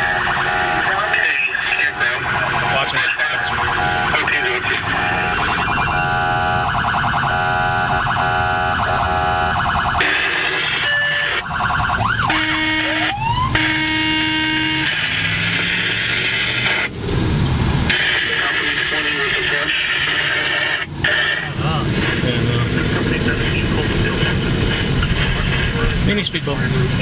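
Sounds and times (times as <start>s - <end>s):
electronic siren: 0.0s - 16.9s, 17.9s - 21.6s
engine and road rumble: 0.0s - 27.0s.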